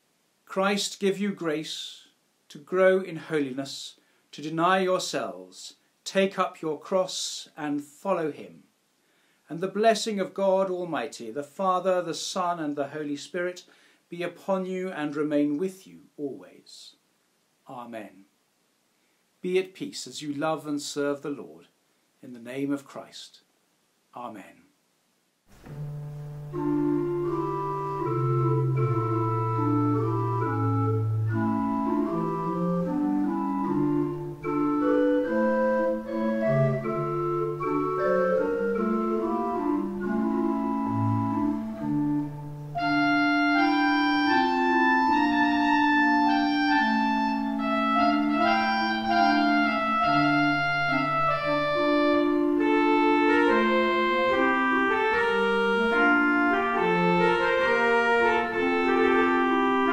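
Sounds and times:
organ playing held chords: 25.6 - 59.9.

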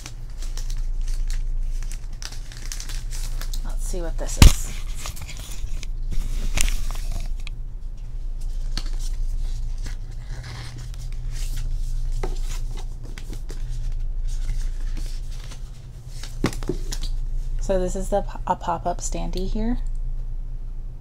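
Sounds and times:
paper and card rustling: 0.0 - 7.4, 8.4 - 17.7
steady low hum: 0.0 - 21.0.

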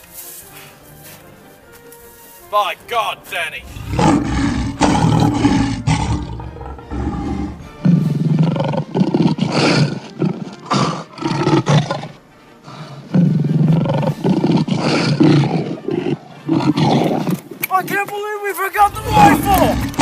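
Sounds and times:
background music: 0.0 - 20.0
lion roaring: 3.6 - 17.4, 18.9 - 20.0.

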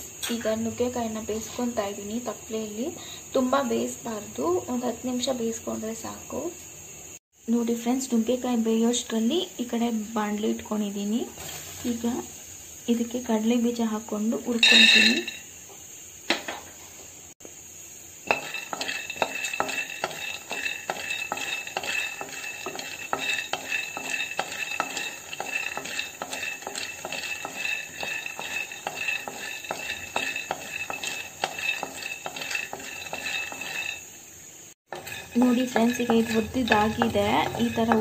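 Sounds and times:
peanuts rattling: 18.2 - 34.1, 34.9 - 38.0
spatula scraping pan: 18.2 - 34.3, 34.9 - 38.0.

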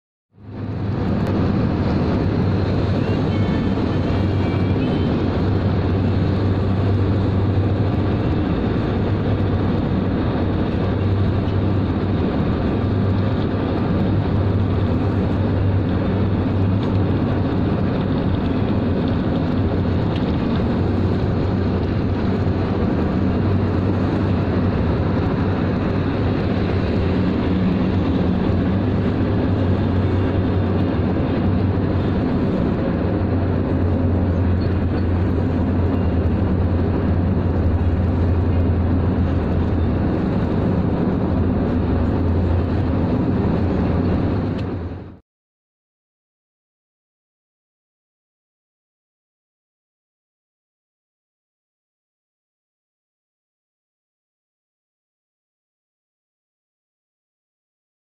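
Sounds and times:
vehicle road noise: 0.3 - 45.2
constant low hum: 0.4 - 45.2.

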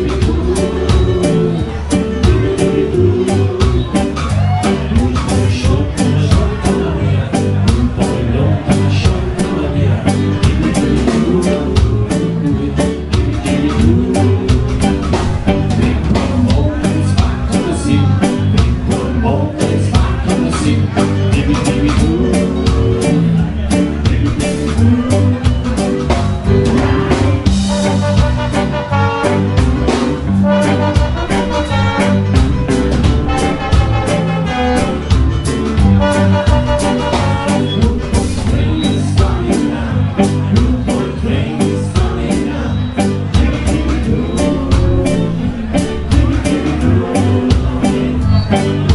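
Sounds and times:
live ska band playing: 0.0 - 48.9
person singing: 0.0 - 48.9.

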